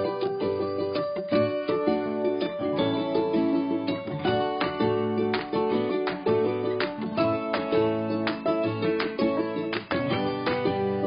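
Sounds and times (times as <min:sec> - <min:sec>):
plucked string music: 0:00.0 - 0:11.0.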